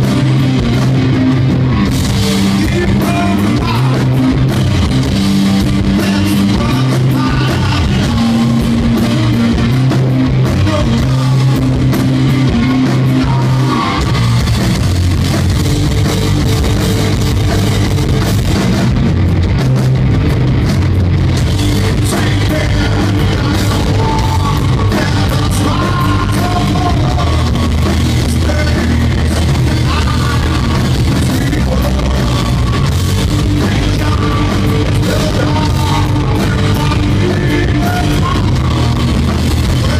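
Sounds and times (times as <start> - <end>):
bass guitar: 0.0 - 39.9
distorted electric guitar: 0.0 - 39.9
drum kit: 0.0 - 39.9
person singing: 2.4 - 4.2, 5.8 - 9.0, 12.6 - 14.3, 21.8 - 39.9.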